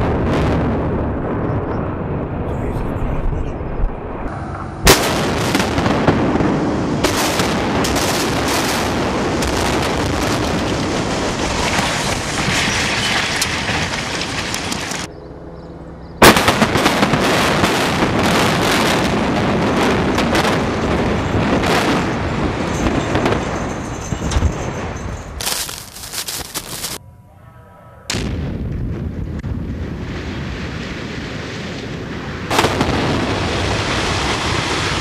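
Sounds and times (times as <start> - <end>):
explosive blast: 0.0 - 15.1, 16.2 - 24.8, 28.1 - 35.0
collapsing building rumble: 0.0 - 25.4
falling debris crashing: 9.7 - 15.1.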